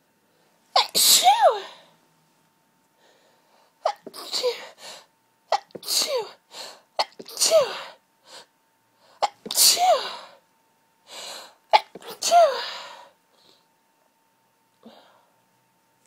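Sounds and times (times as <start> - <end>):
person sneezing: 0.8 - 1.8, 3.8 - 4.8, 5.5 - 6.4, 7.0 - 8.0, 9.2 - 10.4, 11.8 - 13.0.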